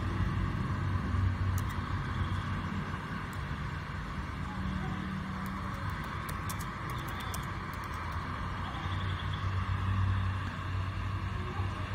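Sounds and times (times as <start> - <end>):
background rumble and hiss: 0.0 - 11.9.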